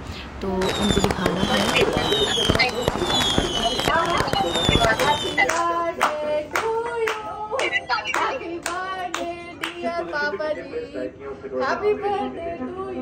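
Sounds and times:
people clapping in time: 0.9s - 9.9s
people singing along: 1.2s - 13.0s.

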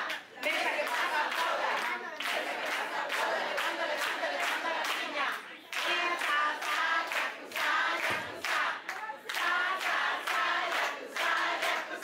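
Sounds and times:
audience singing together: 0.0s - 12.0s
hand clapping: 5.7s - 12.0s.

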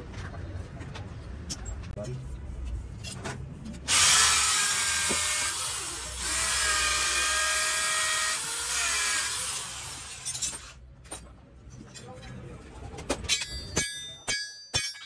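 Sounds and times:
electric drill boring steel: 3.9s - 10.8s.

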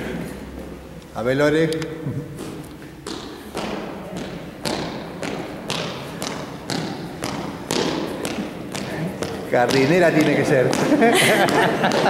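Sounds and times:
dance steps stamping on hard floor: 2.4s - 12.0s.

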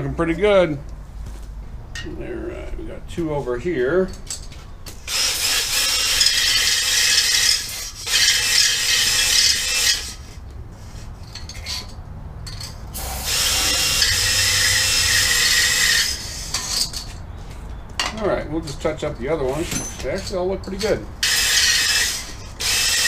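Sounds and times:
cordless drill spinning: 5.0s - 10.4s, 13.0s - 16.7s, 21.2s - 23.0s.

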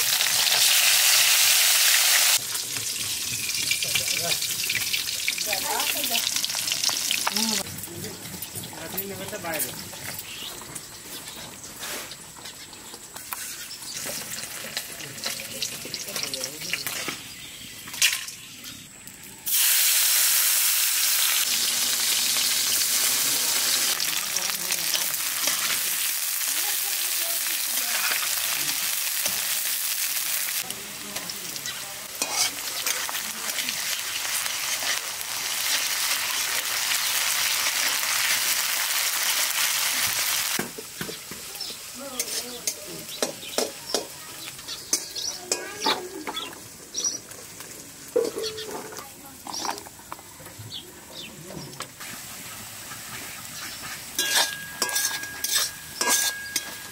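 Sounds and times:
onions sizzling in hot oil: 0.0s - 50.3s, 51.8s - 56.9s
spatula scraping pan: 32.2s - 33.7s, 52.4s - 56.9s.

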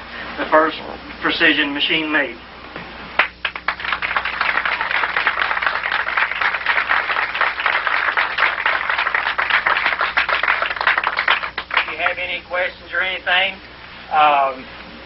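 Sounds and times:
audience applauding: 3.2s - 12.2s.

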